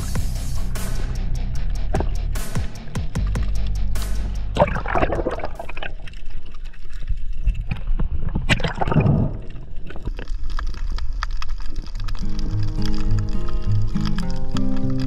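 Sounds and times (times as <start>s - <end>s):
water sloshing and splashing: 4.6s - 15.0s.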